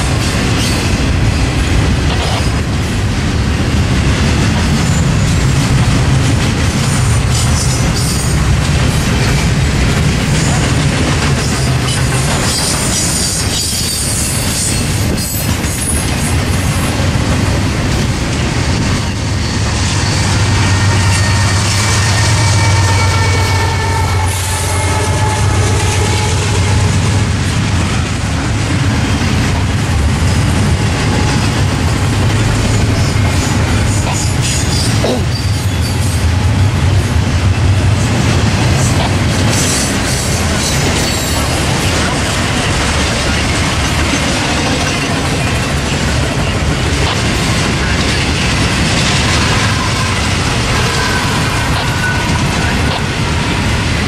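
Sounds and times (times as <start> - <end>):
freight train cars clacking: 0.0 - 54.0
high wheel squeal: 19.4 - 27.0, 49.4 - 53.0.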